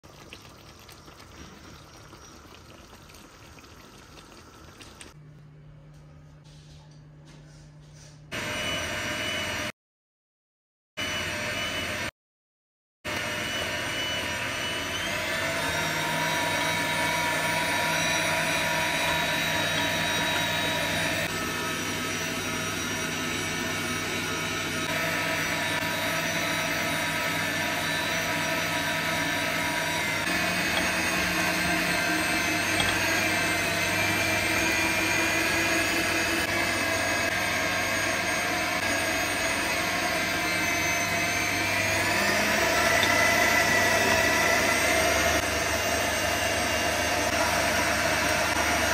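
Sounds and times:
stand mixer motor whining: 8.4s - 9.7s, 11.0s - 12.1s, 13.1s - 48.9s.

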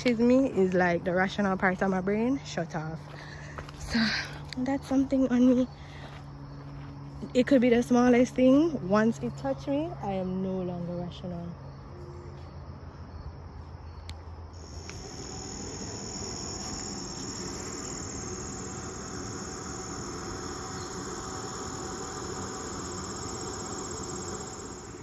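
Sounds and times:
insects trilling: 14.6s - 25.0s.

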